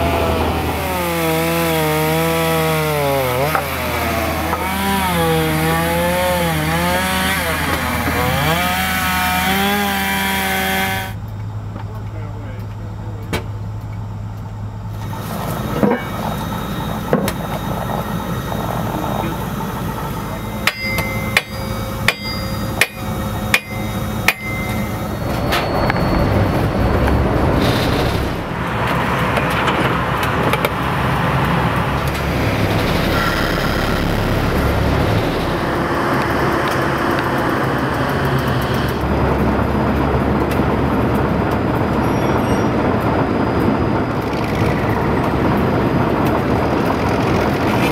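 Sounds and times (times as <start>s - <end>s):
locomotive engine hum: 0.0s - 47.9s
hammer blows on metal: 20.6s - 26.2s.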